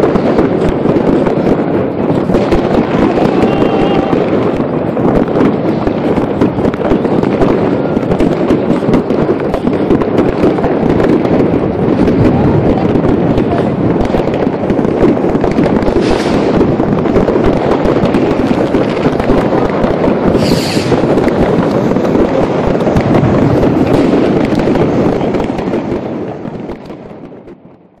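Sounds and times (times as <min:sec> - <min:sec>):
fireworks crackling and popping: 0:00.0 - 0:28.0
high hiss: 0:20.4 - 0:21.0.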